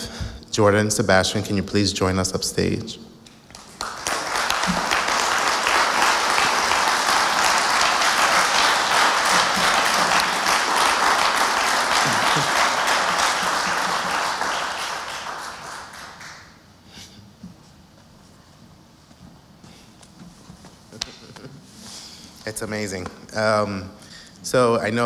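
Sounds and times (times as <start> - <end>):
audience applauding: 3.5 - 16.6.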